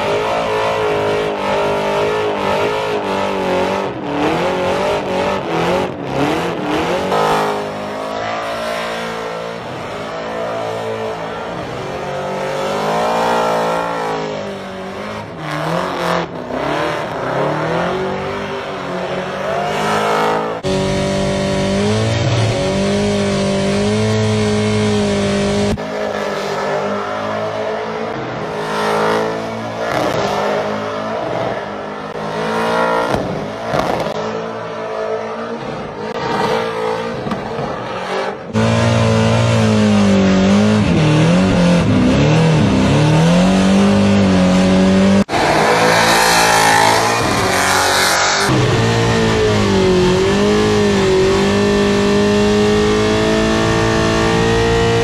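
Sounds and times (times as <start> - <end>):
car engine revving hard: 0.0 - 34.4, 35.0 - 55.0.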